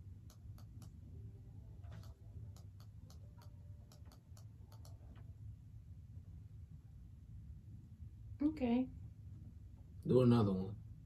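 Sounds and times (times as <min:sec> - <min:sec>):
low steady hum: 0:00.0 - 0:11.0
faint light clicking: 0:01.9 - 0:05.2.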